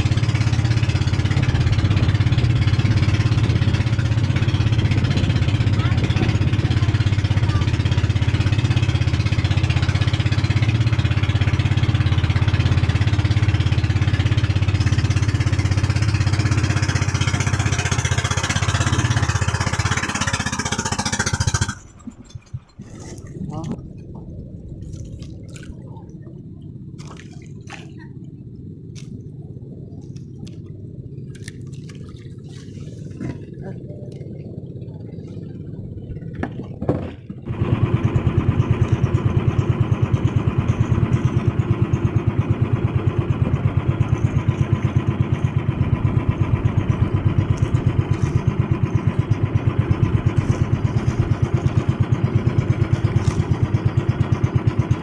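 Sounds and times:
boat engine running: 0:00.0 - 0:55.0.

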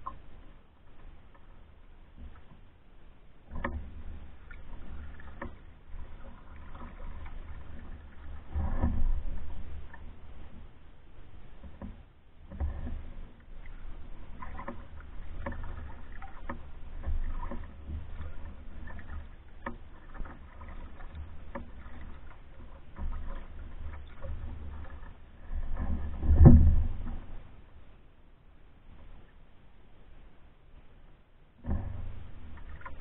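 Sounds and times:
canoe paddle strokes: 0:00.0 - 0:33.0
knocks on canoe: 0:25.7 - 0:27.3.

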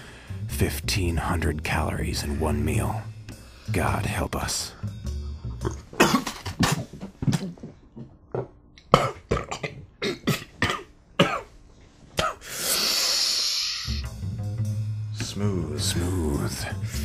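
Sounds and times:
man coughing: 0:05.6 - 0:07.5, 0:09.0 - 0:11.5, 0:12.2 - 0:12.5.

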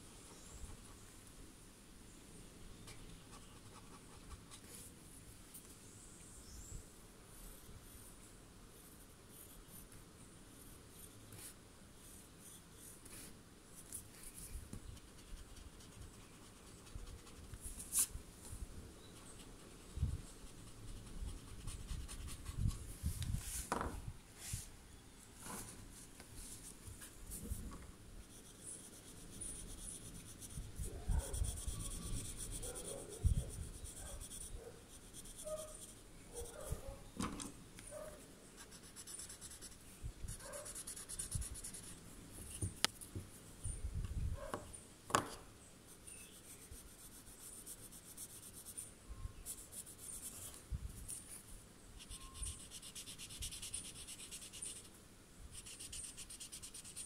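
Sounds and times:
soft scratchy pencil strokes: 0:07.3 - 0:18.2, 0:25.4 - 0:37.0, 0:38.0 - 0:43.1, 0:45.9 - 0:57.0.

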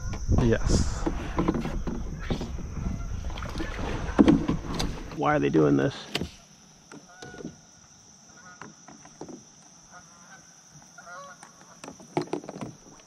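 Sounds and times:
geese honking: 0:08.3 - 0:08.7, 0:09.9 - 0:11.8.

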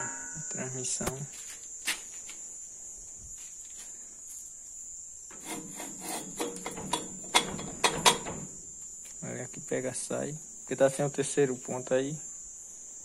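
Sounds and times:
cricket chirring: 0:00.0 - 0:13.0
metal scraping and clicking: 0:05.3 - 0:08.6.

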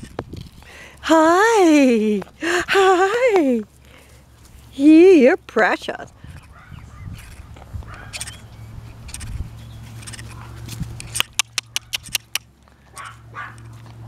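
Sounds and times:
puppies yipping: 0:06.4 - 0:08.5, 0:11.2 - 0:13.7.

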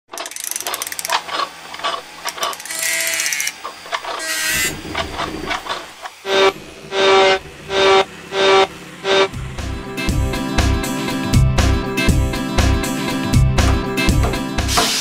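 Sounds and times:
ratcheting clicks: 0:00.1 - 0:05.8
gears and slides clacking: 0:00.1 - 0:09.3
loud pitched tone: 0:06.2 - 0:09.5.

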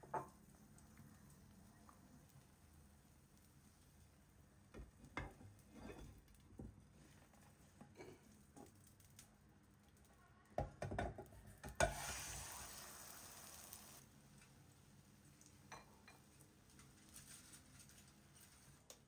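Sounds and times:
sizzling in hot oil: 0:00.0 - 0:09.4, 0:11.6 - 0:14.1.

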